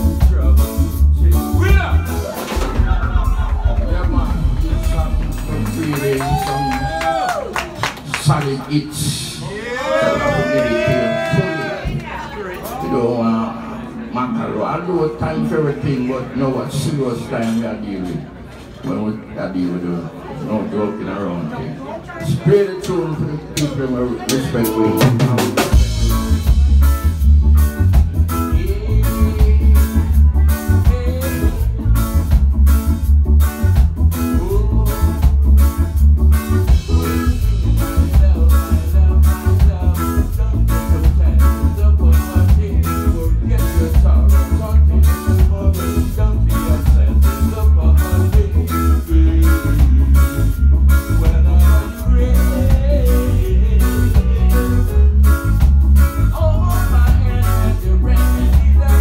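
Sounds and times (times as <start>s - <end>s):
deep bass line: 0.0s - 7.6s, 24.3s - 59.0s
reggae band playing: 0.0s - 59.0s.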